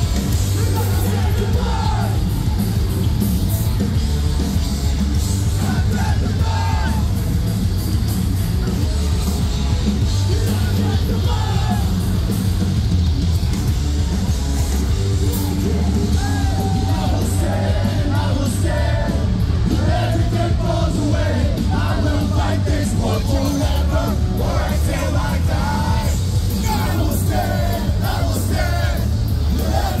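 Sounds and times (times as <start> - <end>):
vocalist singing and yelling: 0.0 - 2.7, 5.4 - 7.4, 10.2 - 12.3, 15.3 - 30.0
metal band playing live: 0.0 - 30.0.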